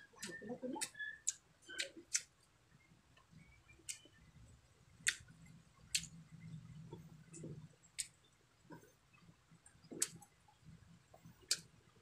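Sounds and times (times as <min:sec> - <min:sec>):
chewing food: 0:00.2 - 0:02.3, 0:05.9 - 0:06.2, 0:09.8 - 0:10.3.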